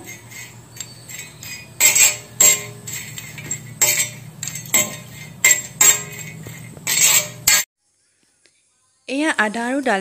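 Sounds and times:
spoon scraping a metal griddle: 0.0s - 7.7s.

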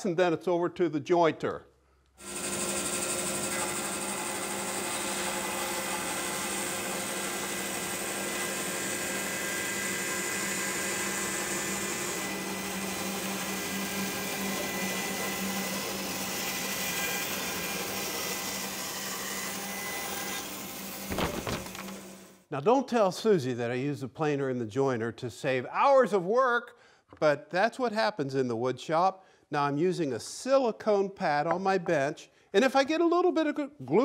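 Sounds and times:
bandsaw cutting wood: 2.2s - 22.2s
dust collector humming: 2.2s - 22.2s.

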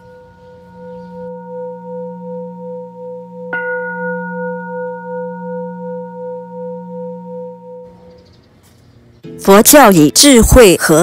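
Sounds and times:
singing bowl ringing: 0.0s - 8.2s.

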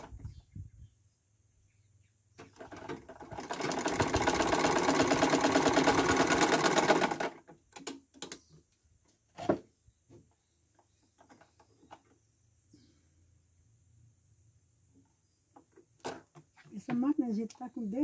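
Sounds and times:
sewing machine stitching: 2.4s - 7.9s.

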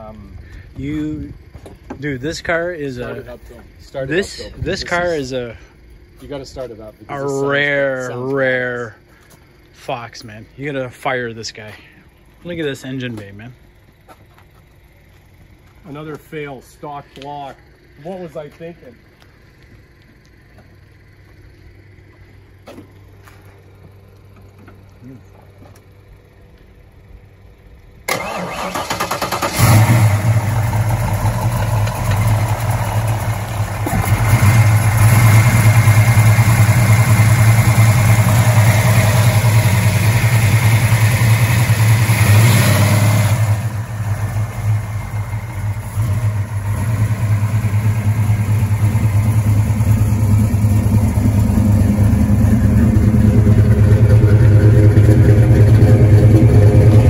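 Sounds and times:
car engine starting and idling: 10.7s - 57.0s.

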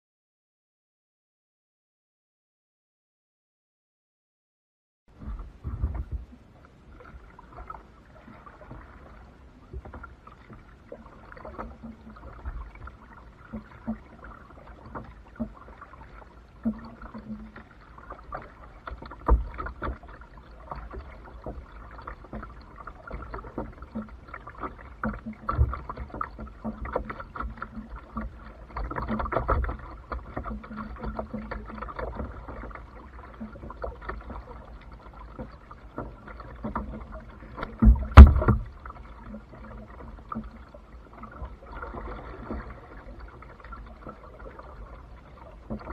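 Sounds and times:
water lapping at hull: 5.1s - 45.9s
paddle splashes: 5.2s - 45.9s
sharp knocks: 37.8s - 38.7s.

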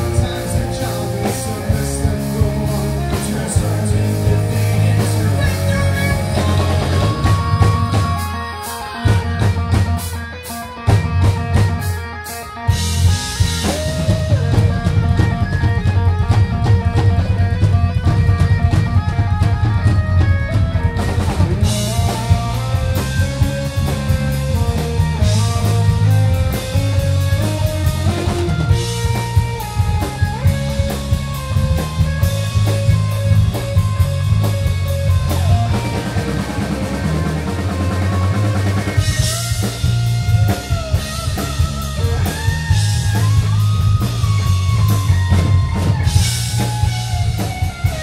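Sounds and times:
bass guitar: 0.0s - 48.0s
drum kit: 0.0s - 48.0s
electric guitar lead line: 0.0s - 48.0s.

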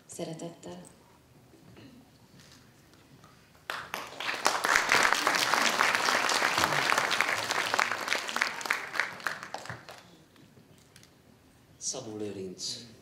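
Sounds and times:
audience applauding: 3.7s - 10.2s.

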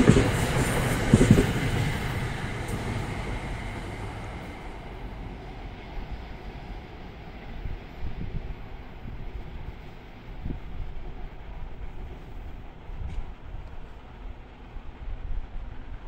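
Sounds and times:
train wheels clacking over rail joints: 0.0s - 4.6s
train rumble: 0.0s - 16.0s.

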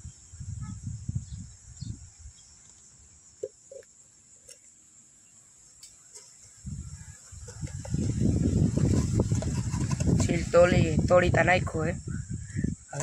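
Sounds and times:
insects chirring: 0.0s - 13.0s
bottle rustles and bumps: 7.3s - 10.9s.

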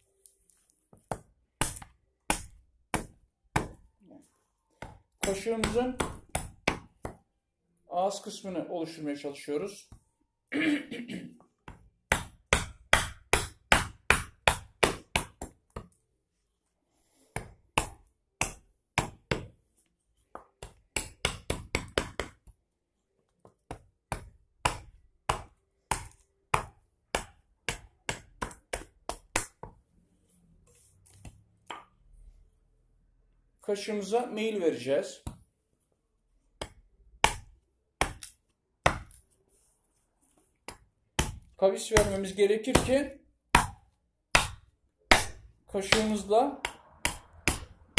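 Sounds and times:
hatchet chopping wood: 1.0s - 3.8s, 4.8s - 7.2s, 11.7s - 15.9s, 17.4s - 19.5s, 20.3s - 22.5s, 23.7s - 29.7s, 36.6s - 39.2s, 40.7s - 47.9s.

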